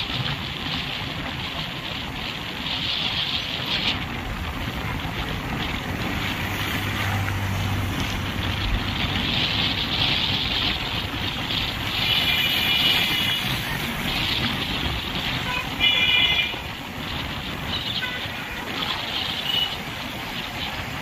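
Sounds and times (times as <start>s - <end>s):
highway road noise: 0.0s - 21.0s
wind on microphone: 0.0s - 21.0s.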